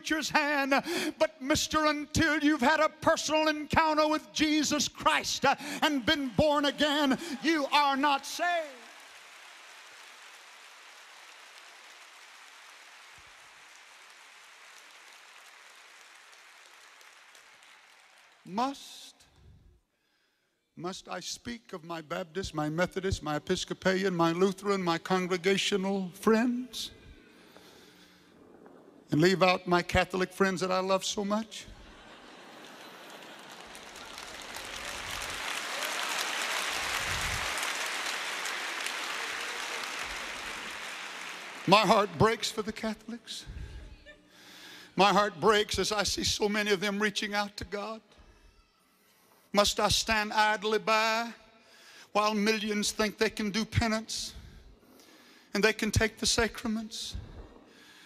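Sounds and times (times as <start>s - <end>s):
crowd applauding: 5.6s - 18.8s, 31.7s - 42.9s.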